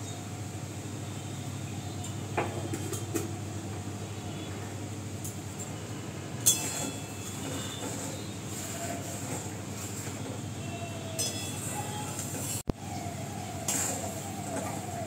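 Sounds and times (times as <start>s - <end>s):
oil and spices sizzling: 6.3s - 12.6s, 13.2s - 14.9s
kitchenware clinking: 6.4s - 8.1s, 11.2s - 12.6s.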